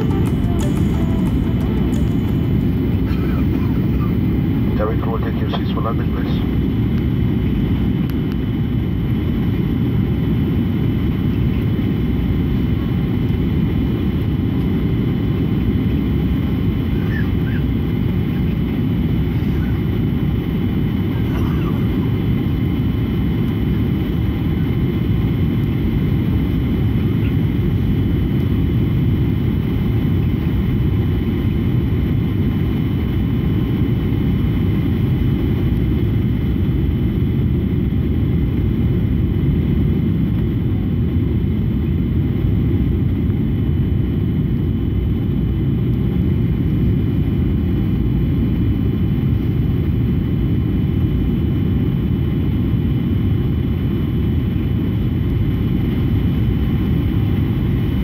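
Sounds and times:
faint steady whining tones: 0:00.0 - 0:08.6
airliner cabin rumble: 0:00.0 - 0:58.0.

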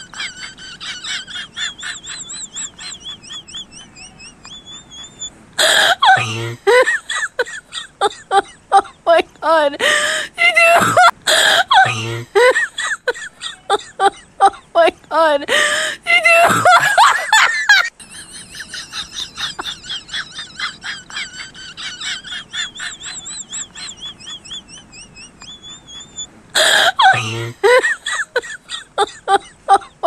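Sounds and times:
rapid high chirps: 0:01.5 - 0:05.3, 0:22.1 - 0:26.3.

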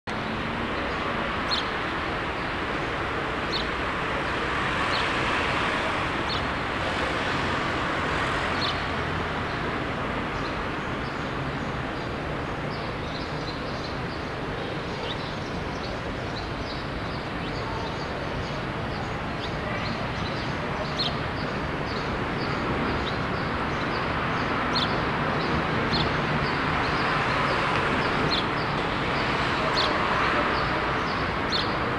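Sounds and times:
city road traffic hum: 0:00.1 - 0:31.9
small birds chirping: 0:00.2 - 0:05.4, 0:10.4 - 0:31.9.

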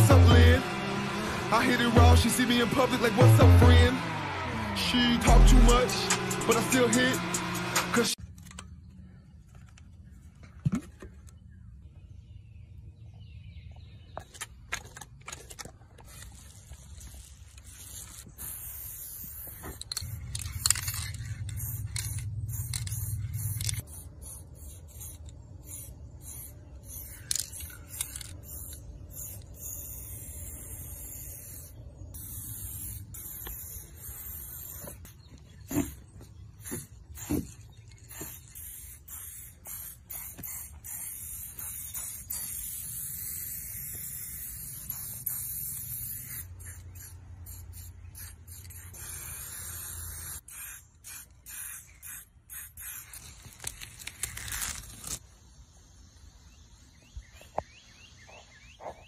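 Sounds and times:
clicks and scrapes: 0:14.2 - 0:17.8
aerosol spray can hissing: 0:16.1 - 0:54.1.

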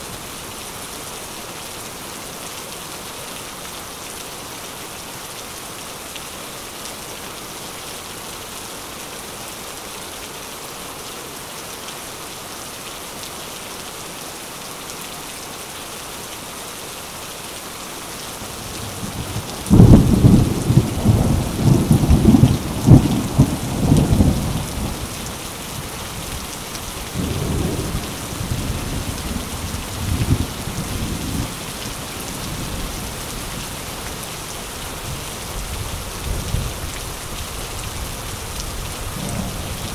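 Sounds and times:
steady rain: 0:00.0 - 0:39.9
thunder rumbling: 0:19.1 - 0:25.1, 0:39.0 - 0:39.9.

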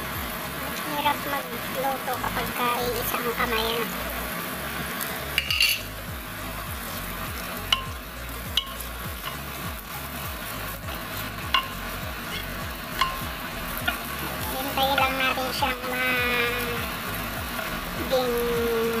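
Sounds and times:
onions sizzling in butter: 0:00.0 - 0:19.0
spatula knocking and scraping pot: 0:05.4 - 0:05.9, 0:08.6 - 0:09.5, 0:11.4 - 0:14.2.

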